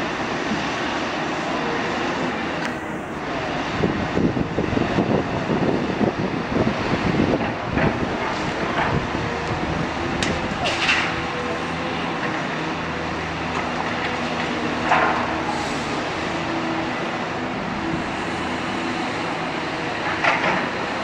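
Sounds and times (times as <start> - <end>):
diesel machinery running: 0.0 - 21.0.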